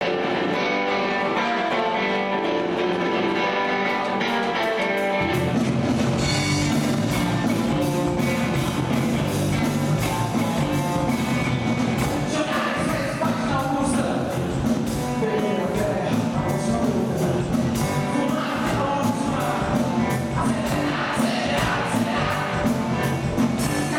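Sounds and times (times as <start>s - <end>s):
electric guitar: 0.0s - 23.9s
rock band playing live: 0.0s - 23.9s
bass and drum kit: 3.8s - 23.9s.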